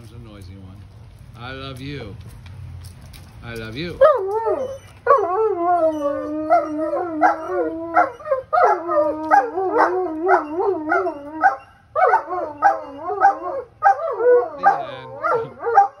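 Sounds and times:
dog howling: 4.0 - 16.0.

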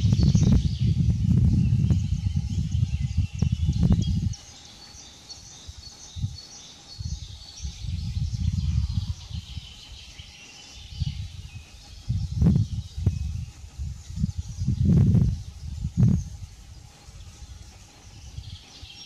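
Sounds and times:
small birds singing: 0.0 - 19.0
wind rumbling on microphone: 0.0 - 19.0.

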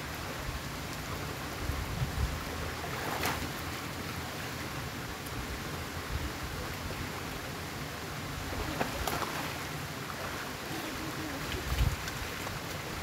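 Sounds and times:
people wading and swimming: 2.5 - 13.0
water splash: 2.8 - 3.7, 8.4 - 10.4
water washing in pool: 8.4 - 13.0.

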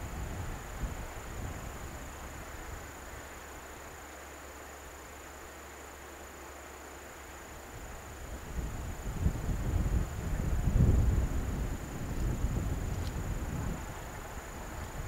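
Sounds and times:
wind rumbling on microphone: 0.0 - 3.9, 7.6 - 15.0
high insect trill: 0.0 - 15.0
steady hiss: 0.0 - 15.0.

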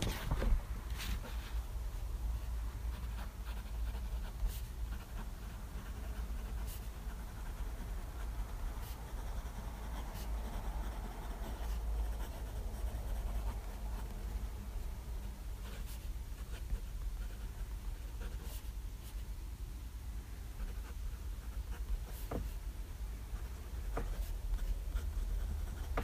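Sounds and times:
low steady hum: 0.0 - 26.0
pen nib scratching on paper: 2.9 - 14.2.

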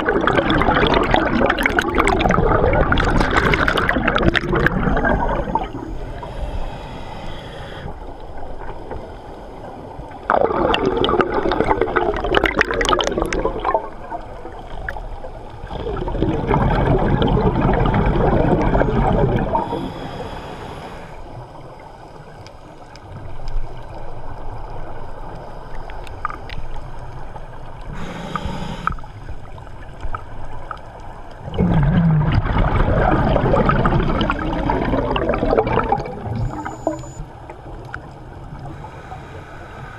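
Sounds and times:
exhaled bubbles gurgling underwater: 0.0 - 39.9
regulator inhale hisses: 5.0 - 8.2, 19.6 - 21.4, 27.9 - 29.2, 38.6 - 39.9.

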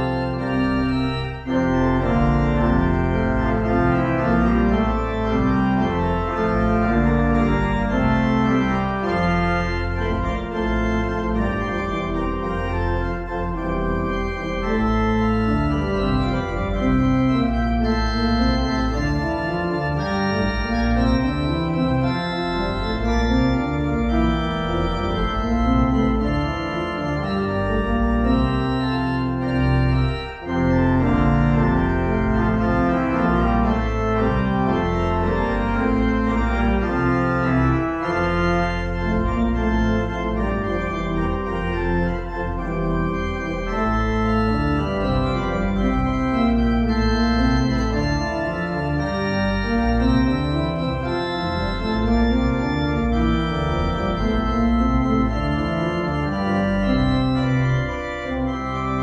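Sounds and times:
organ playing sustained chords: 0.0 - 59.0.

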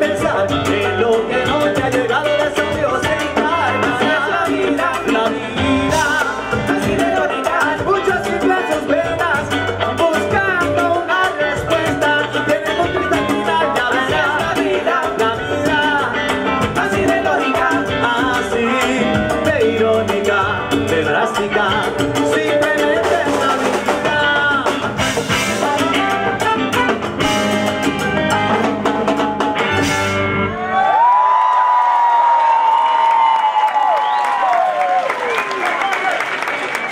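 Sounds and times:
person singing lead vocals: 0.0 - 26.4
live salsa band playing: 0.0 - 36.9
audience cheering: 30.5 - 36.9
long held shout: 30.6 - 36.1.

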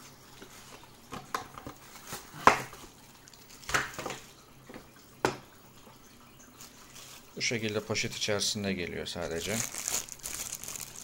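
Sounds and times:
plastic wrap crinkling: 3.2 - 4.2, 6.5 - 11.0.

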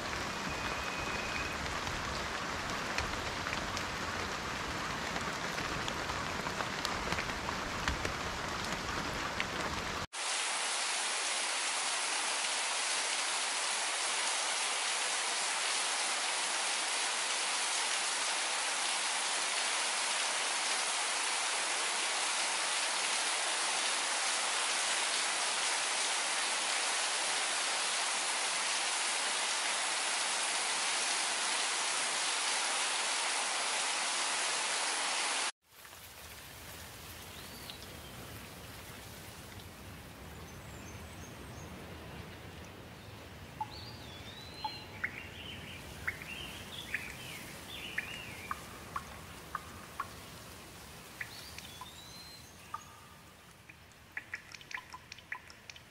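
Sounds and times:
steady rain hiss: 0.0 - 55.9
birds chirping: 43.6 - 55.9.

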